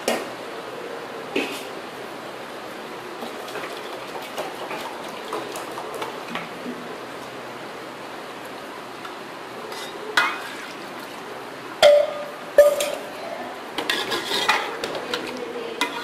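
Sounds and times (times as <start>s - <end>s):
spoon stirring and scraping: 9.6s - 10.8s, 13.8s - 16.0s
metal spoon striking pot: 11.8s - 13.0s.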